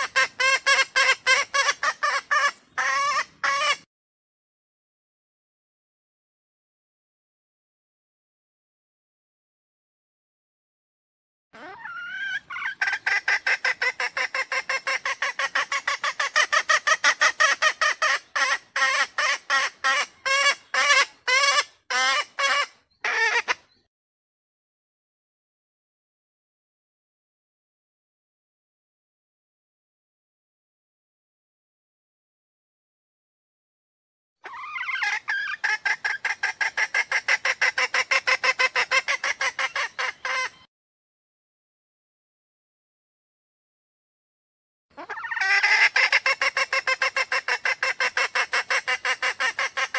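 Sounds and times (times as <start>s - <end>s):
junglefowl hen clucking: 0.0s - 3.8s, 11.6s - 23.7s, 34.4s - 40.7s, 44.9s - 49.9s.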